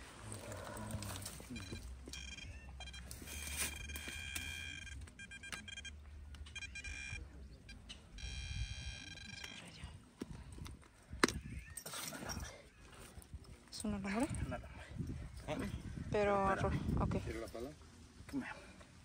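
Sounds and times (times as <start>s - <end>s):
metal detector beep: 1.4s - 10.0s.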